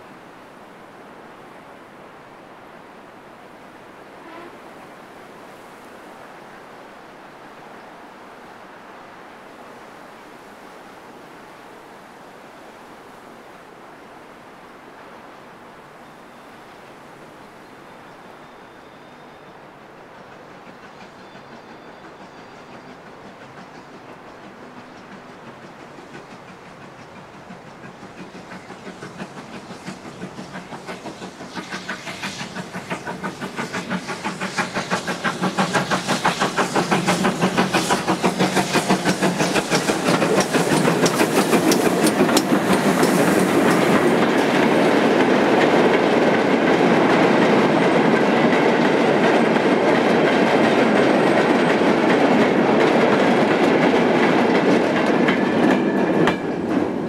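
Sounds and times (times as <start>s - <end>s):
steam locomotive exhaust beats: 18.2s - 57.0s
wagons rattling over rail joints: 22.7s - 57.0s.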